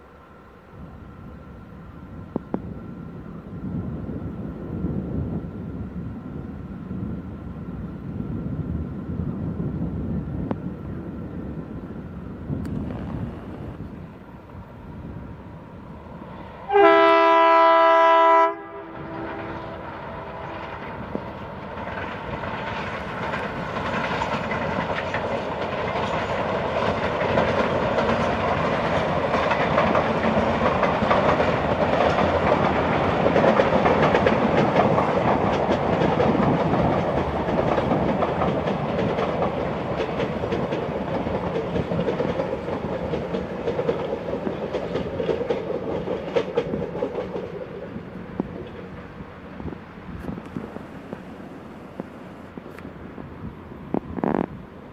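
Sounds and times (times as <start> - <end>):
locomotive horn: 16.7 - 20.7
train wheels clacking over rail joints: 19.3 - 49.0.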